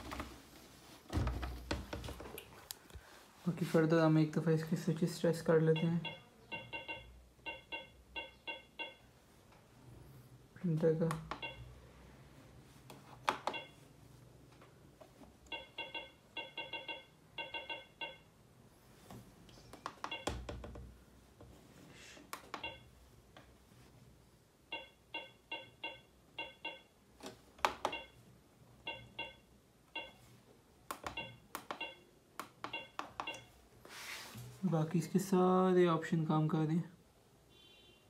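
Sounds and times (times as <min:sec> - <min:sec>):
short electronic beeps: 0:05.7 - 0:09.1.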